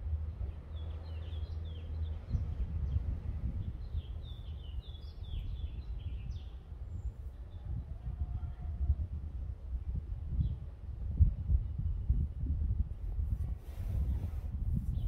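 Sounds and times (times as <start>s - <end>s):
low outdoor rumble: 0.0s - 15.0s
small birds chirping: 0.2s - 8.1s.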